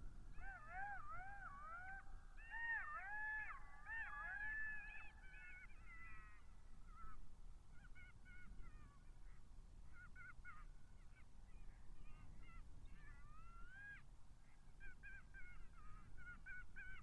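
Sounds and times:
jackals yipping and howling: 0.3s - 7.2s, 14.8s - 17.0s.

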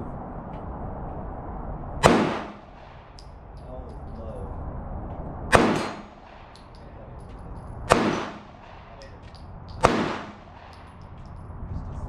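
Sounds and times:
handgun shots on steel targets: 5.5s - 11.3s.

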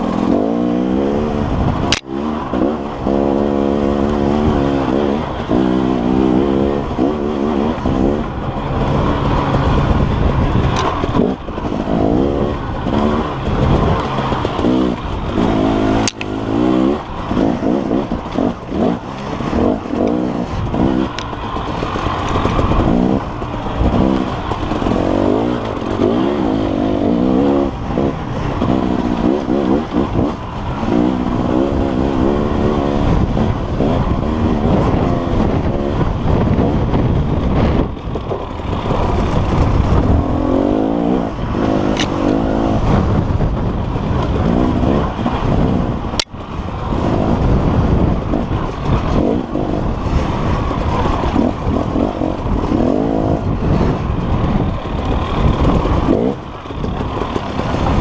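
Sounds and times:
dirt bike engine revving: 0.0s - 58.0s
sharp click: 16.0s - 16.3s, 41.9s - 42.3s.

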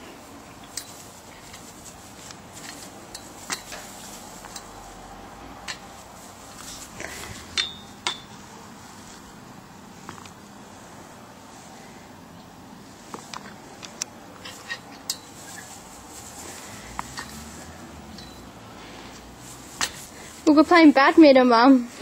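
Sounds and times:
sharp metallic clicks and clinks: 7.5s - 8.3s, 18.1s - 18.5s.

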